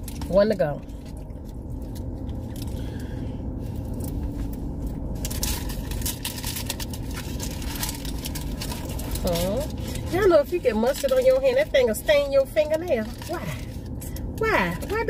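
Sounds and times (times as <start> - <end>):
car engine idling: 0.0 - 15.0
food packaging crinkling: 3.9 - 11.8.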